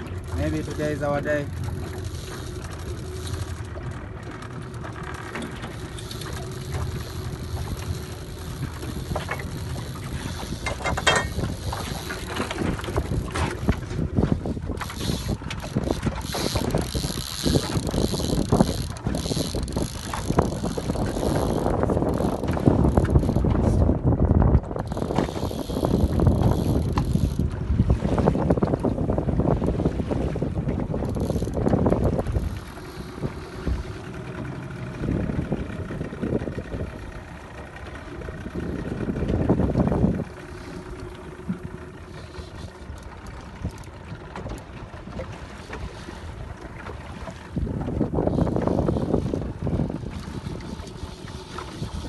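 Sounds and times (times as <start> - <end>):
wind buffeting microphone: 0.0 - 52.0
fly reel ratcheting: 0.3 - 3.8, 4.4 - 13.8, 14.8 - 23.5, 24.8 - 27.5, 30.9 - 34.0, 42.1 - 43.1.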